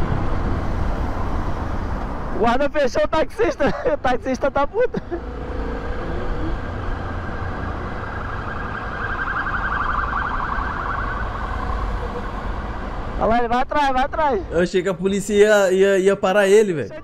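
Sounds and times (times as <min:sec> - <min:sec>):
engine and traffic rumble: 0:00.0 - 0:17.0
warbling electronic siren: 0:06.4 - 0:12.6.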